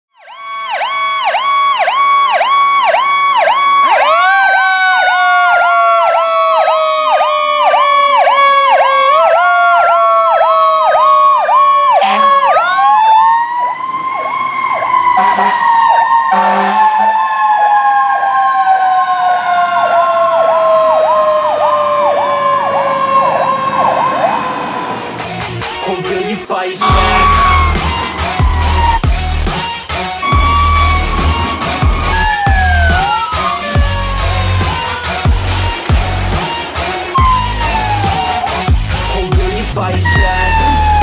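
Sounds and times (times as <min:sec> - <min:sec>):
electronic siren cycling fast: 0:00.3 - 0:24.6, 0:26.8 - 0:38.8, 0:40.0 - 0:41.0
short horn blasts: 0:12.0 - 0:12.4, 0:15.1 - 0:17.1, 0:26.8 - 0:28.1.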